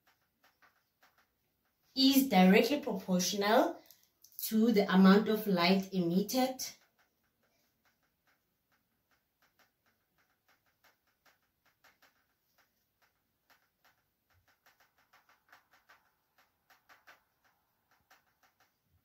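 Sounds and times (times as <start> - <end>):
marker squeaking on whiteboard: 0.0 - 2.0, 6.8 - 19.0.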